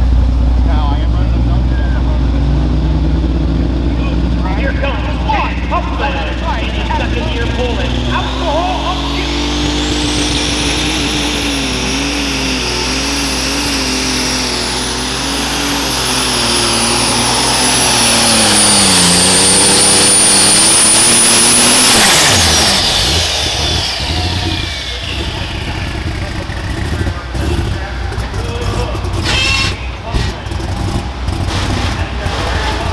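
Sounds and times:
engine at full throttle: 0:00.0 - 0:32.9
high turbo whine: 0:00.0 - 0:32.9.

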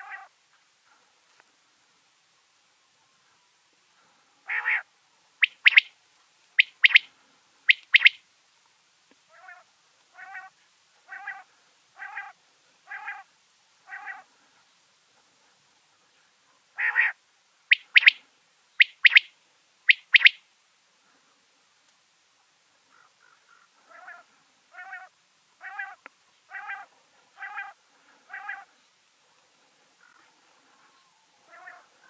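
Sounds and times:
quail singing sharp high notes: 0:00.0 - 0:00.3, 0:04.4 - 0:06.0, 0:06.6 - 0:07.1, 0:07.7 - 0:08.2, 0:09.3 - 0:10.5, 0:11.1 - 0:13.2, 0:13.9 - 0:14.3, 0:16.8 - 0:18.2, 0:18.8 - 0:19.3, 0:19.9 - 0:20.4, 0:23.9 - 0:28.7
softer lower bird notes: 0:02.4 - 0:08.2, 0:16.8 - 0:20.5.

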